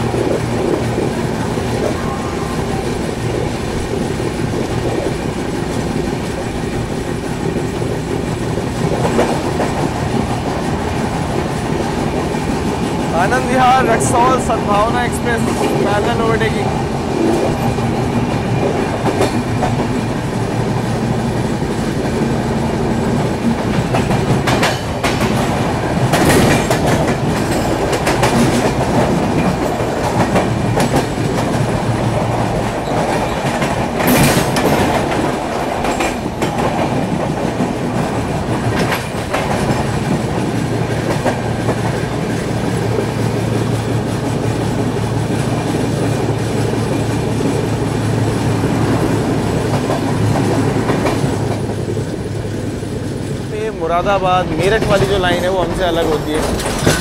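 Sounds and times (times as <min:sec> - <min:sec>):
train wheels rumbling on rails: 0:00.0 - 0:57.0
wheels clacking over rail joints: 0:00.0 - 0:57.0.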